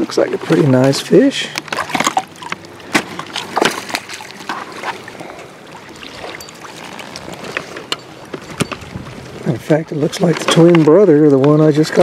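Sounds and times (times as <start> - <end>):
lapping water: 0.0 - 12.0
fish splashing in water: 1.4 - 9.5.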